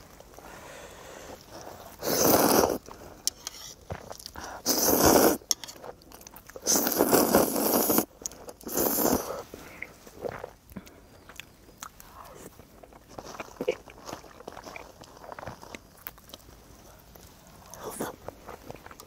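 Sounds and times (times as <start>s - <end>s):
chewing: 1.3s - 19.0s
person slurping noodles: 1.9s - 2.8s, 4.4s - 5.5s, 6.6s - 9.5s.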